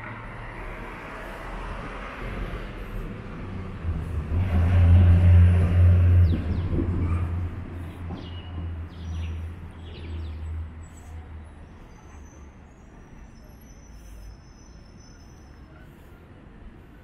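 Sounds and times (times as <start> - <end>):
vehicle engine rumbling past: 0.0 - 12.2
birds chirping: 7.8 - 15.7.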